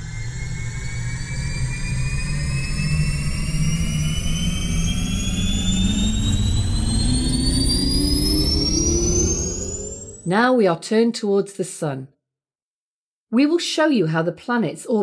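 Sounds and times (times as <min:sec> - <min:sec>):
rising thin whine: 0:00.0 - 0:10.3
spacecraft engine rumble: 0:00.0 - 0:10.3.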